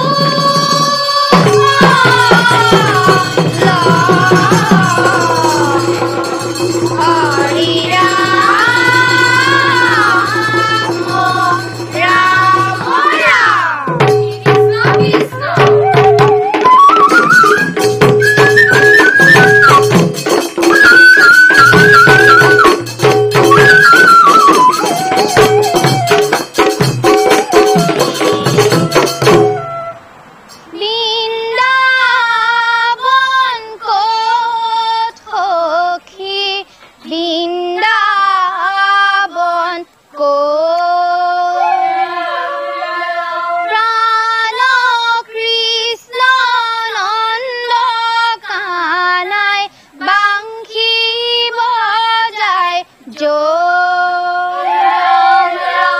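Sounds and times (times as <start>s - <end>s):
young women singing unaccompanied: 0.0s - 29.7s, 30.5s - 55.9s
drums beating: 0.0s - 30.0s
bamboo flute melody: 0.0s - 30.7s, 41.0s - 44.8s, 54.4s - 55.9s.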